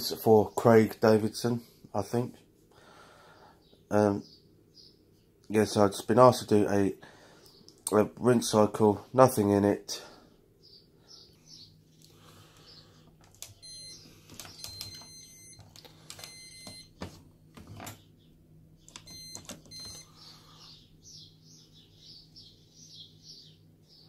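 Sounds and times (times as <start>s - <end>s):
dial clicks: 13.2s - 17.0s, 18.9s - 20.0s
high electronic beeps: 13.5s - 15.6s, 19.0s - 20.1s.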